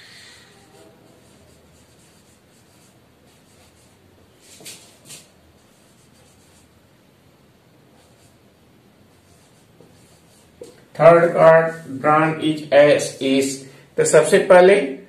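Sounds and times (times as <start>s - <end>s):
marker writing on whiteboard: 0.1s - 6.8s, 7.9s - 12.0s.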